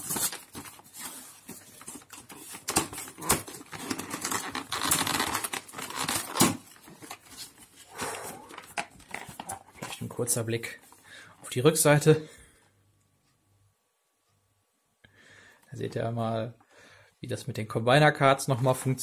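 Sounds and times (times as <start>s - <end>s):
cardboard box rustling and crinkling: 0.0s - 7.9s, 8.5s - 10.2s.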